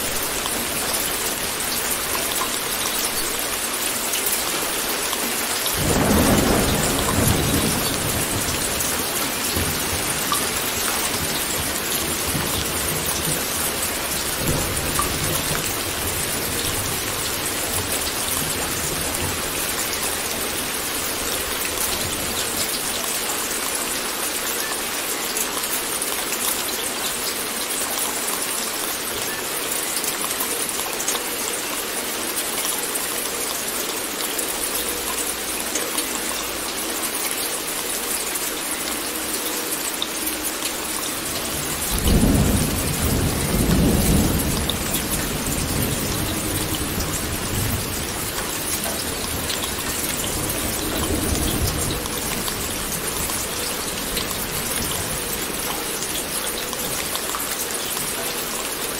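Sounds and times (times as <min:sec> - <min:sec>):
rain hissing: 0:00.0 - 0:58.9
thunder rumble: 0:05.8 - 0:19.7.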